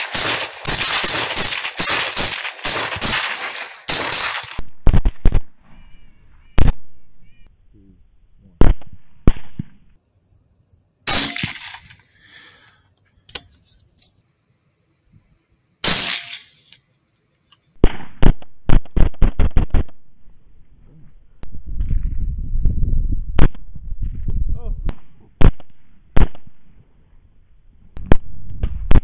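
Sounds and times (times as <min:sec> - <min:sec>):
rifle shots: 0:00.0 - 0:05.5, 0:11.1 - 0:12.0, 0:15.8 - 0:16.5.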